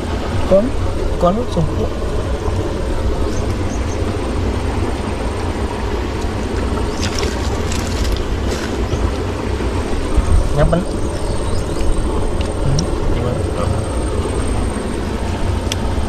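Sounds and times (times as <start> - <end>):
wind buffeting microphone: 0.0 - 16.0
shells and dry leaves rustling: 6.2 - 9.8.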